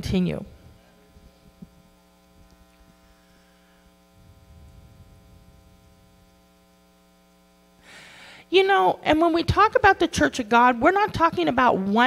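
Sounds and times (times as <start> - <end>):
electrical mains hum: 0.0 - 12.0
slight low rumble: 4.1 - 6.5.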